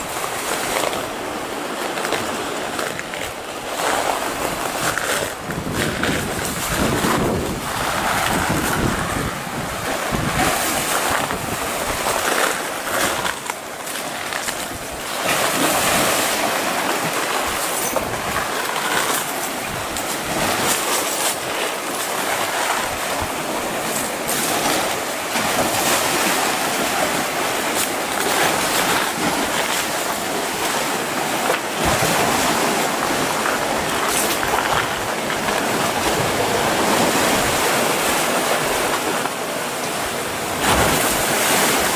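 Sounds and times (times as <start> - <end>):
sea waves surging among rocks: 0.0 - 41.9.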